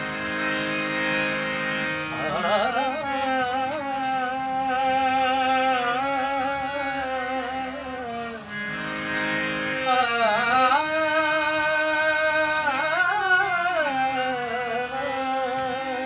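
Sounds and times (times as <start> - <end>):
reed harmonium playing chords: 0.0 - 16.0
man singing: 2.0 - 8.5, 9.8 - 16.0.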